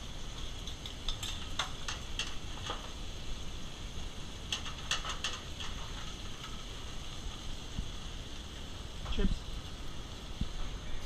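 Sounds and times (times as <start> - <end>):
steady kitchen hiss: 0.0 - 11.0
tongs and pans clinking: 4.5 - 6.6.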